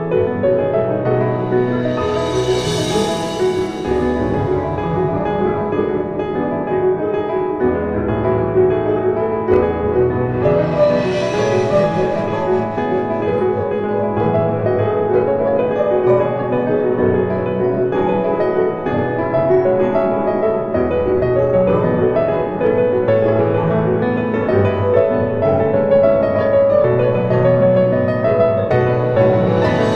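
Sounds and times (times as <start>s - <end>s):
bass line: 0.0s - 15.0s, 28.6s - 29.9s
piano background music: 0.0s - 29.9s.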